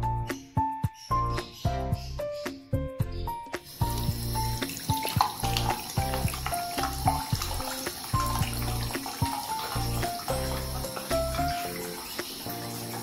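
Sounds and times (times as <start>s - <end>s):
faucet water running into sink: 3.6s - 13.0s.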